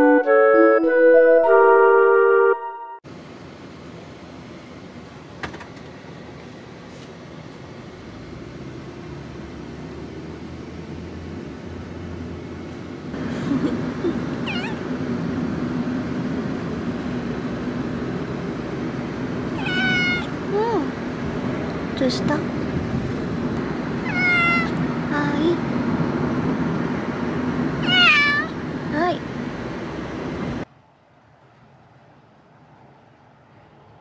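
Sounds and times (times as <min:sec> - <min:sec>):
kitten meowing: 0:14.4 - 0:14.8, 0:19.6 - 0:20.3, 0:24.0 - 0:24.8, 0:27.8 - 0:28.6.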